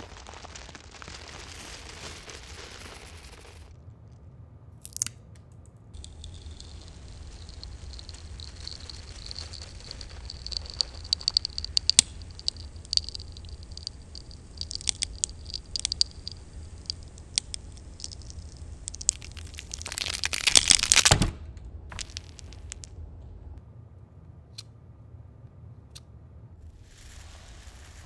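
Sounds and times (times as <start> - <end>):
wooden pencil crackling and crunching: 0.0 - 3.8, 4.8 - 23.0.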